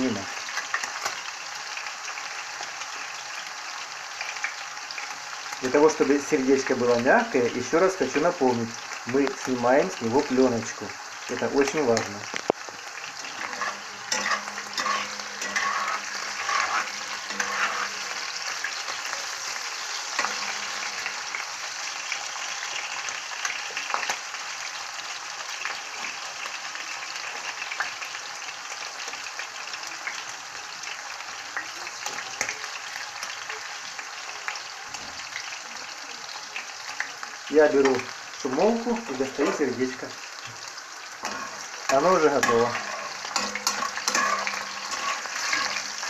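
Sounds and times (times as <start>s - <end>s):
meat sizzling in oil: 0.0s - 46.0s
metal spatula scraping pan: 13.2s - 21.4s, 41.2s - 46.0s.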